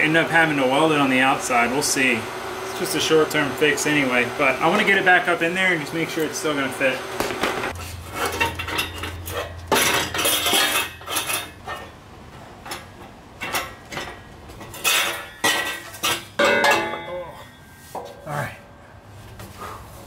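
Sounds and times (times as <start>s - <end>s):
metal exhaust pipes clanking: 7.0s - 18.7s.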